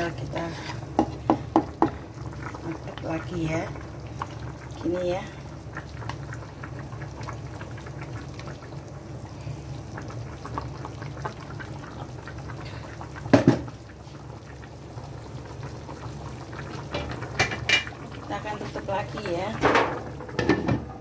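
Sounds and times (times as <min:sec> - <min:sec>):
liquid simmering and bubbling: 0:00.0 - 0:21.0.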